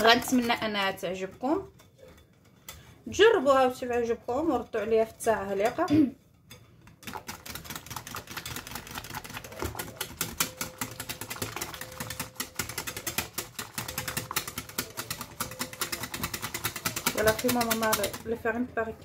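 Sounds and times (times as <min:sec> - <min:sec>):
whisk clicking against glass bowl: 0:06.5 - 0:18.4.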